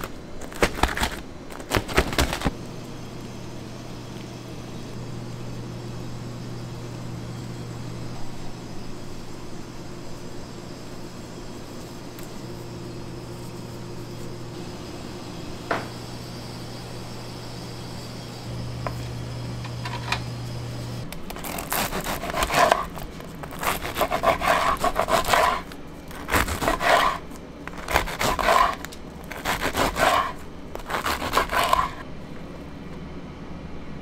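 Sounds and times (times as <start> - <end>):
bread knife sawing crusty bread: 21.4 - 32.0.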